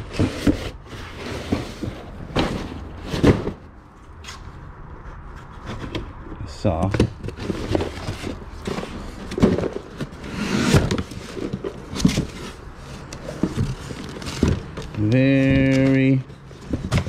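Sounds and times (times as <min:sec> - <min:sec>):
objects knocking and clattering: 0:05.5 - 0:17.0.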